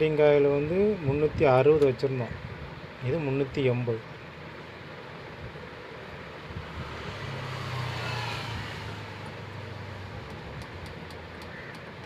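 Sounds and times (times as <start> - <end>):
faint ticks: 10.2 - 12.0.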